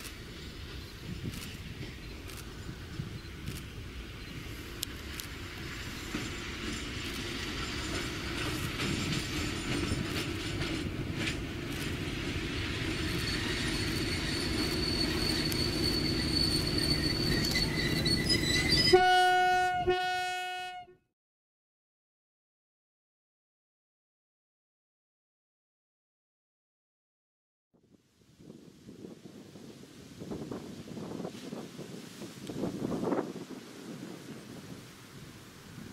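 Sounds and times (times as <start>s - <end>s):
locomotive engine and wheels: 0.0s - 19.1s
locomotive horn blasts: 18.8s - 21.0s.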